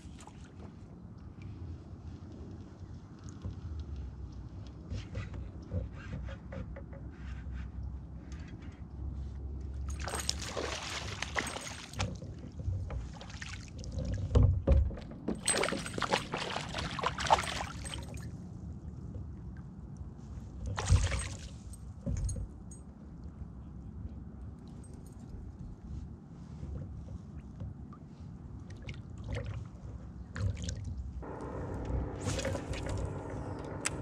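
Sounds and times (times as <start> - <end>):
fish thrashing and splashing: 10.0 - 12.1, 15.5 - 18.1.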